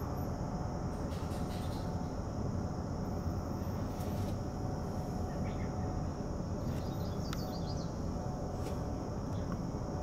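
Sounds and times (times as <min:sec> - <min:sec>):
distant jet engines rumbling: 0:00.0 - 0:10.0
high insect hum: 0:00.0 - 0:10.0
bird chirps: 0:06.6 - 0:08.0.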